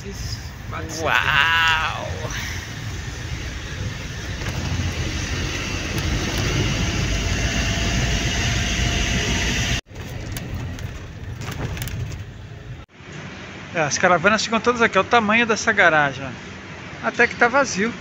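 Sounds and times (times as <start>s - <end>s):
steady hum: 0.0s - 9.8s
engine rumble: 0.0s - 13.5s
tyre and road noise: 0.0s - 13.7s.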